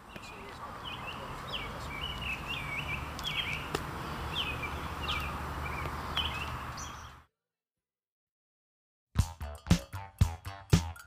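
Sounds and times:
small birds chirping: 0.0s - 7.3s.

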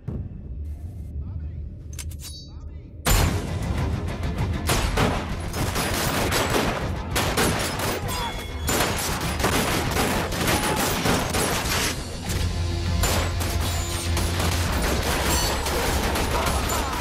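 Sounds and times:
rapid gunfire: 4.7s - 8.1s, 8.7s - 12.0s, 13.0s - 17.0s.

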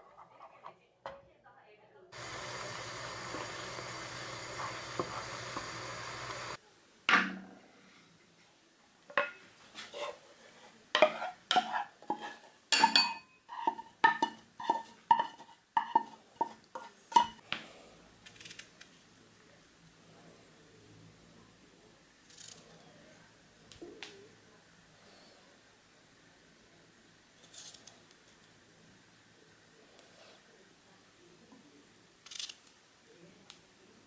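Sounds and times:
steady hum: 2.2s - 6.6s
spoon scraping metal saucepan: 11.0s - 17.4s.

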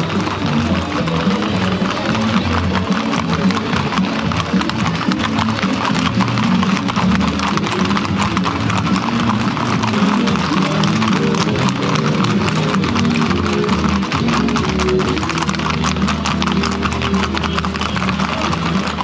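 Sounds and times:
horse hooves clip-clopping: 0.0s - 19.0s
music playing: 0.0s - 19.0s.

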